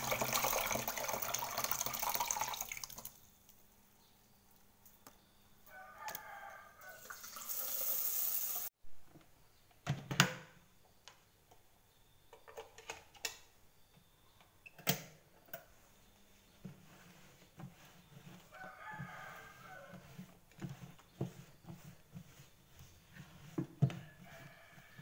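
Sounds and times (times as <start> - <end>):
tap water running into metal pot: 0.0 - 3.1, 7.0 - 8.7.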